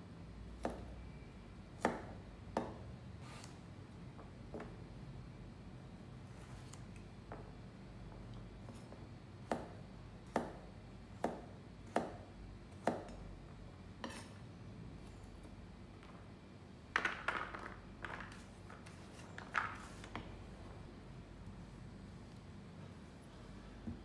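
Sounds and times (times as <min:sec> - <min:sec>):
knife chopping on wooden board: 0:00.6 - 0:00.9, 0:09.4 - 0:13.2.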